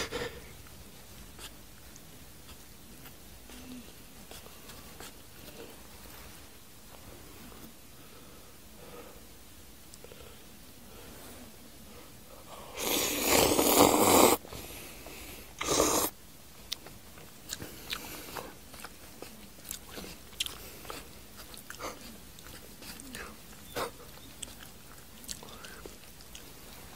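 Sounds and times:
person slurping noodles: 12.7 - 14.4, 15.6 - 16.1
wet chewing and lip-smacking: 16.6 - 26.8.

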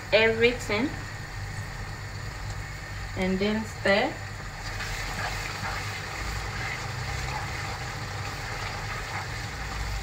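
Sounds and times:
steady low hum: 0.0 - 10.0
stew simmering and sizzling in pan: 0.0 - 10.0
wooden spatula stirring: 4.6 - 10.0.

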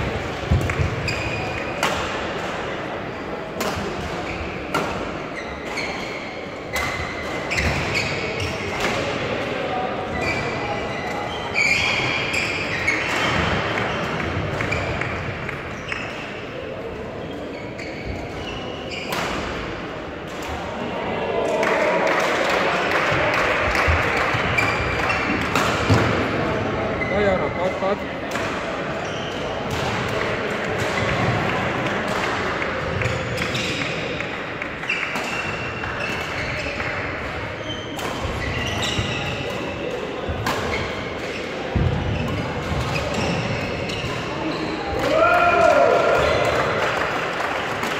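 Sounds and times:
hubbub of distant voices: 0.0 - 47.9
shoes squeaking on court floor: 0.5 - 1.9, 4.2 - 8.8, 10.1 - 16.6, 17.2 - 19.7, 23.8 - 26.2, 26.8 - 28.0, 29.0 - 29.9, 32.8 - 45.0.

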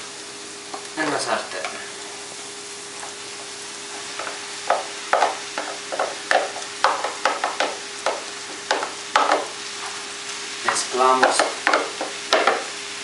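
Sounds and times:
oil sizzling in a frying pan: 0.0 - 13.0
wooden spoon scraping and knocking: 4.2 - 10.0, 10.6 - 12.7.

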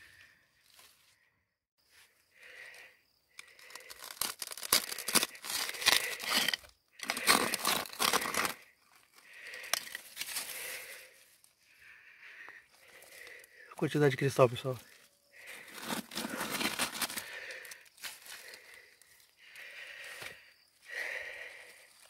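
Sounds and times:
loose stones rattling: 3.5 - 8.6, 9.4 - 10.6
steel rod scraping rock: 4.4 - 8.6.

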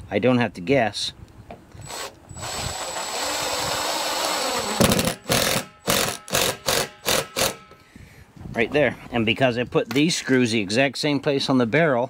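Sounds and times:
cordless drill driving screw: 1.8 - 7.7.

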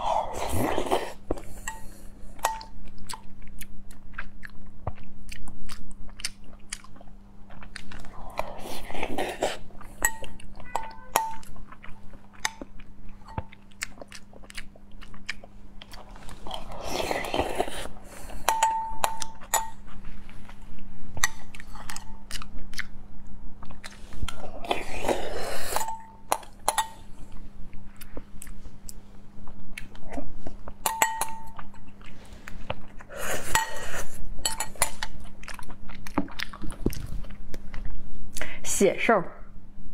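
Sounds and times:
metal spoon clinking on glass bowl: 18.5 - 19.8, 30.8 - 31.6.

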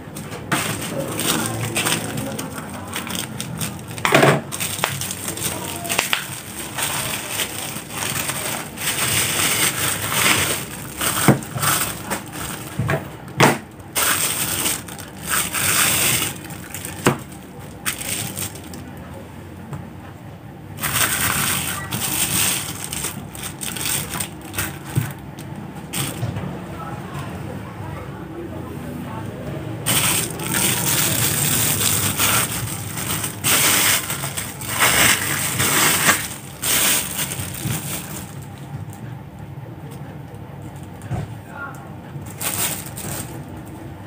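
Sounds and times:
plastic packaging crinkling: 0.1 - 18.9, 20.8 - 26.3, 29.8 - 38.7, 42.2 - 43.6
bubble wrap snaps: 0.5 - 12.3.

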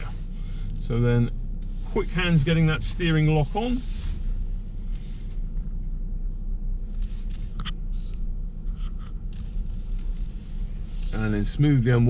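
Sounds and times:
car engine and tyres rumbling: 0.0 - 12.0
faint clicks and rubs: 3.6 - 5.7, 6.8 - 11.5.

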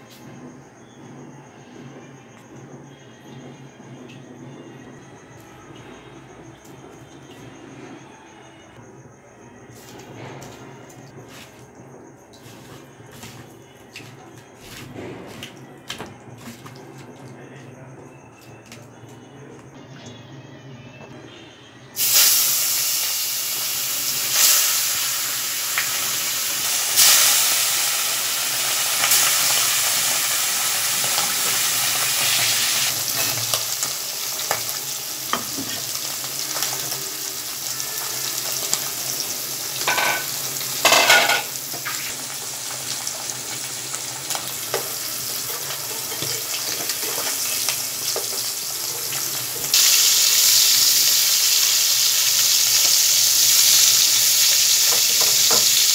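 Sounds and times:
fish sizzling in hot oil: 22.0 - 55.9.

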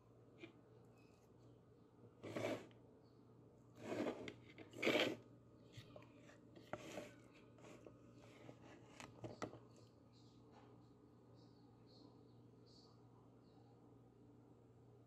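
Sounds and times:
metal spoon scraping plastic bowl: 2.2 - 2.7, 3.8 - 5.2, 6.6 - 7.9.

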